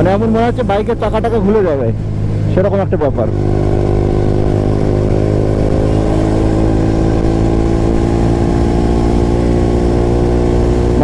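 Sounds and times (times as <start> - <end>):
rider talking: 0.0 - 3.4
motorcycle engine under load: 0.0 - 11.0
wind and road rush: 0.0 - 11.0.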